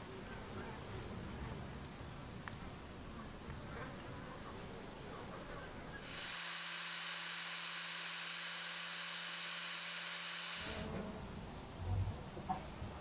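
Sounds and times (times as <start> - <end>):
disc sander whirring: 6.0 - 10.9.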